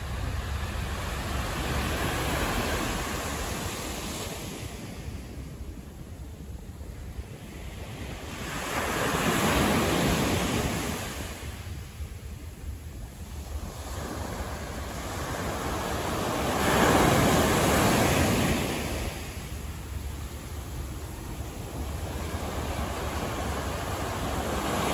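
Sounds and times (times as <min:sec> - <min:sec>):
steady low rumble: 0:00.0 - 0:08.3, 0:18.6 - 0:24.9.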